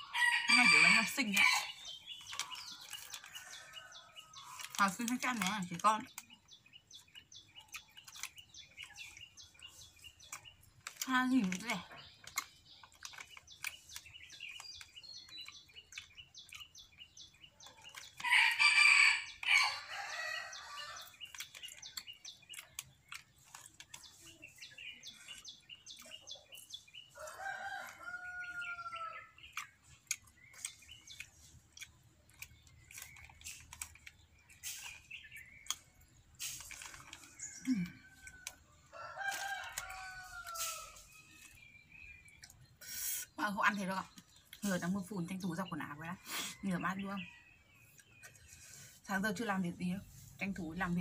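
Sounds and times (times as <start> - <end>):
small birds chirping: 0.0 - 51.0.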